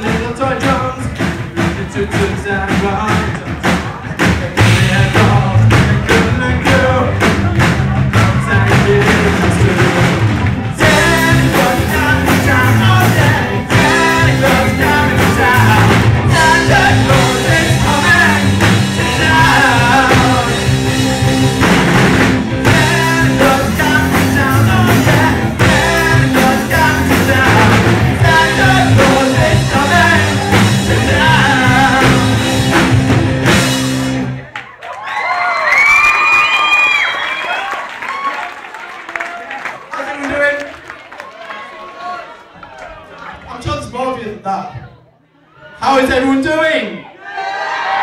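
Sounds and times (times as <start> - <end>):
person singing: 0.0 - 21.6, 22.6 - 32.9
live rock band playing: 0.0 - 34.6.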